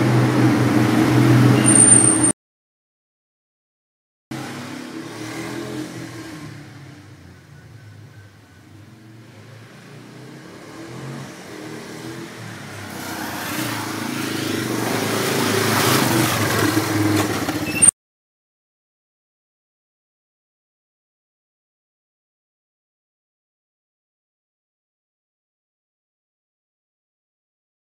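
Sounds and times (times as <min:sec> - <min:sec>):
quad bike engine: 0:00.0 - 0:02.3, 0:04.3 - 0:17.9.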